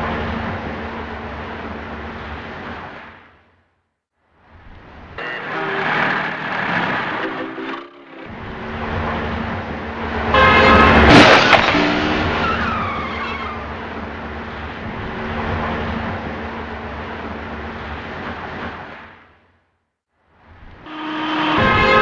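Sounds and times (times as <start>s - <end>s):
traffic noise: 0.0s - 22.0s
car crash: 5.4s - 16.6s
car tires squealing: 10.6s - 13.9s.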